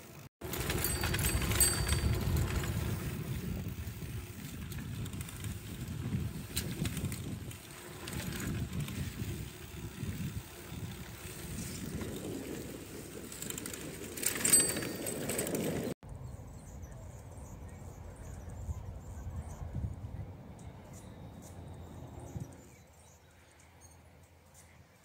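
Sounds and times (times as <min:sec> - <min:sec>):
tyres rumbling on dirt path: 0:00.0 - 0:16.0
outdoor background: 0:00.0 - 0:25.0
wind on microphone: 0:00.6 - 0:17.2, 0:18.0 - 0:22.8.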